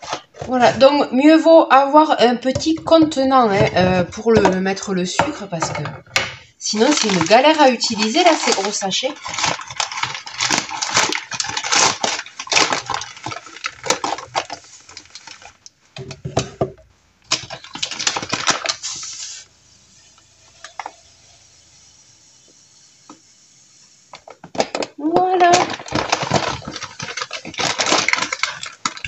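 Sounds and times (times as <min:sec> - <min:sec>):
faint steady hiss: 0:00.0 - 0:29.0
plastic bag crinkling: 0:06.1 - 0:15.7, 0:17.2 - 0:21.8, 0:24.2 - 0:29.0
sugar pouring into canister: 0:06.7 - 0:15.4, 0:17.3 - 0:24.2.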